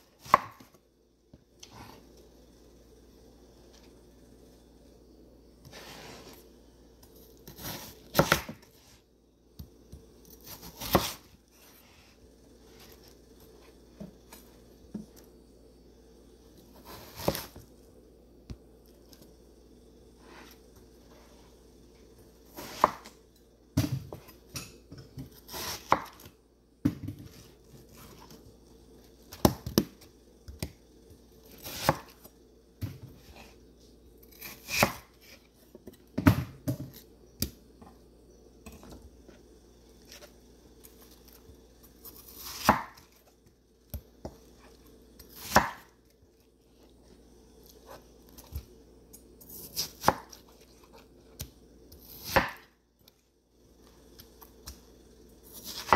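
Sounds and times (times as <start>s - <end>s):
knife chopping on wooden board: 0.2s - 0.7s, 7.5s - 8.6s, 10.4s - 11.2s, 22.6s - 23.1s, 25.2s - 27.4s, 31.6s - 32.1s, 34.4s - 35.1s, 42.4s - 43.1s, 45.3s - 45.9s, 49.7s - 50.4s, 52.0s - 52.7s, 55.6s - 55.9s.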